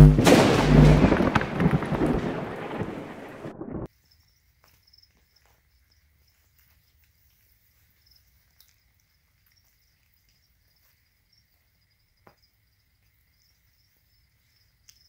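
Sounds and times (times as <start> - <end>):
thunder-like rumbling crash: 0.0 - 3.9
faint crickets chirping: 3.9 - 15.0.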